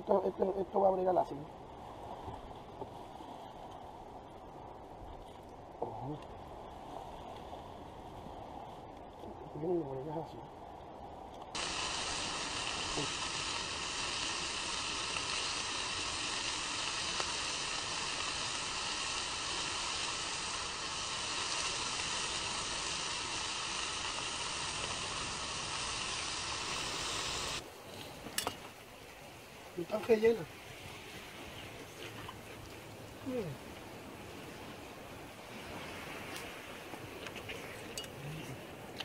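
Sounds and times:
meat sizzling in a frying pan: 11.6s - 27.6s.

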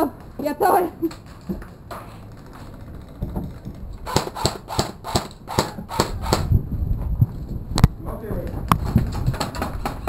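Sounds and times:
airsoft guns firing: 4.0s - 6.5s.

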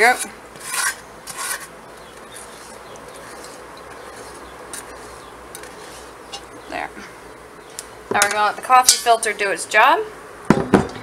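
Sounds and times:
spatula scraping a cast iron pan: 0.0s - 6.5s.

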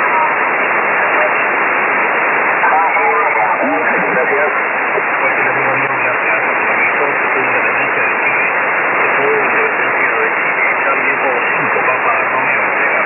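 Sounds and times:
radio band noise hiss: 0.0s - 13.0s
faint radio voice: 2.6s - 13.0s.

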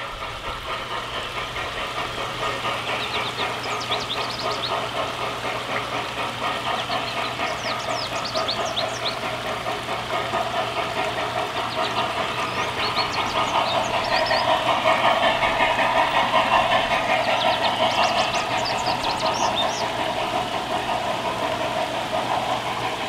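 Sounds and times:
model train motor whirring: 0.0s - 23.0s.

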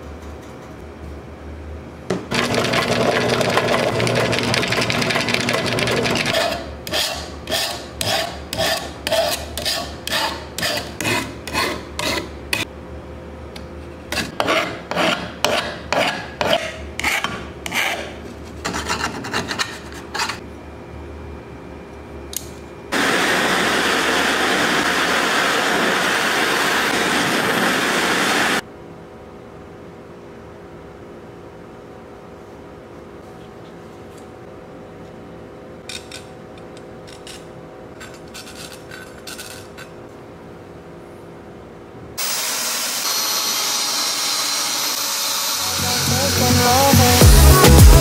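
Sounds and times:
drill press running: 2.1s - 6.4s
hand file rasping on metal: 6.2s - 12.3s, 14.2s - 20.4s
steady loud hiss: 23.0s - 28.6s.

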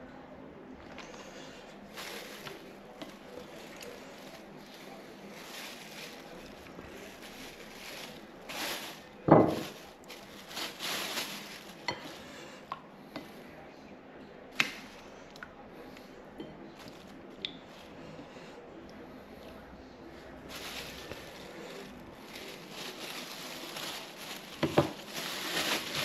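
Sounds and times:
plastic bag rustling: 1.0s - 12.4s, 20.4s - 26.0s.

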